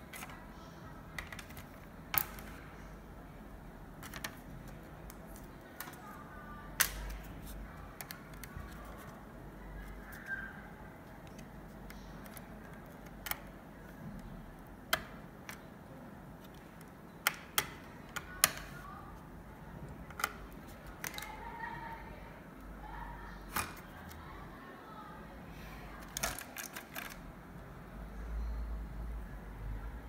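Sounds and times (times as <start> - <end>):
plastic clips clicking loose: 1.2 - 2.6, 6.8 - 7.2, 11.2 - 13.5, 16.8 - 18.8, 26.0 - 27.2.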